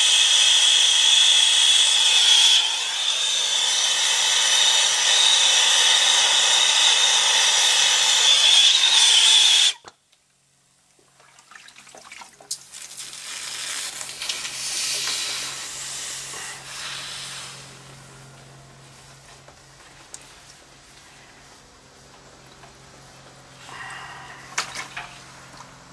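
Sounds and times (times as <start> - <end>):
hot metal hissing and ticking: 12.5 - 17.8
torch flame hissing: 12.7 - 18.0.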